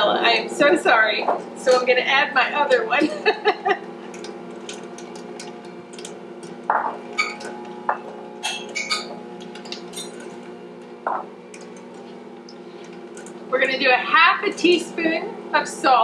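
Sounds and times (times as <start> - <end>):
steady hum: 0.0 - 16.0
bottle knocking on counter: 6.7 - 7.0, 11.1 - 11.3
glass bottle and spoon clinking: 6.7 - 10.2.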